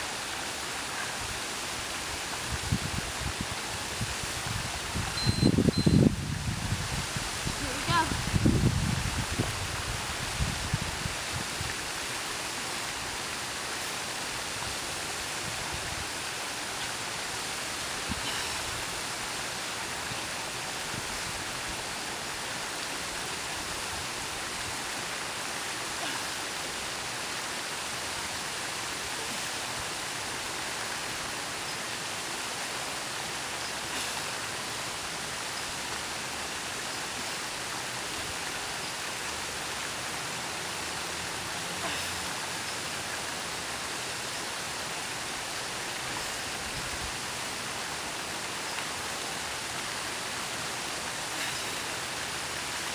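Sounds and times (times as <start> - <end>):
waterfall rushing over rocks: 0.0 - 52.9.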